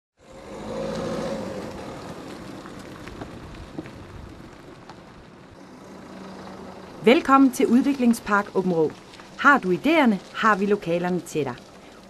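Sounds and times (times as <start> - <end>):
car driving past: 0.2 - 9.4.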